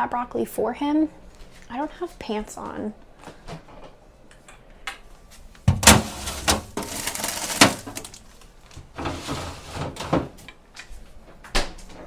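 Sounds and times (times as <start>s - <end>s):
food containers knocking and clattering: 5.7s - 10.5s
rustling: 5.8s - 10.0s.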